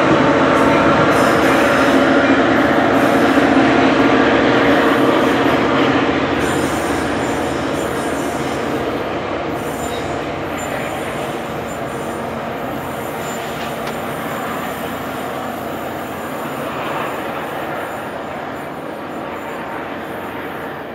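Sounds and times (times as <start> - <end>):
train pulling away on rails: 0.0 - 20.9
high wheel squeal: 6.4 - 19.7.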